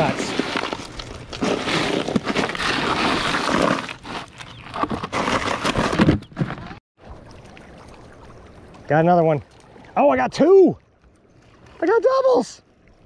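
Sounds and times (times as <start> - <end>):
fish and ice rattling in cooler: 0.0 - 6.8.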